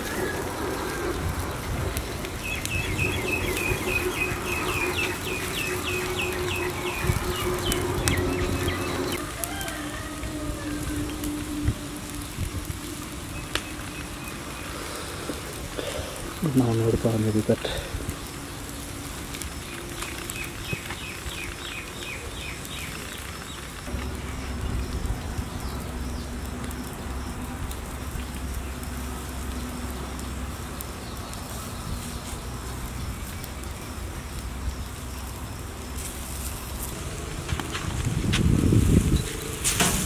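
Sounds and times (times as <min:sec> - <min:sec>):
low steady rumble: 0:00.0 - 0:16.8, 0:23.8 - 0:40.0
crackling hiss: 0:00.0 - 0:40.0
bird chirping: 0:02.0 - 0:09.3.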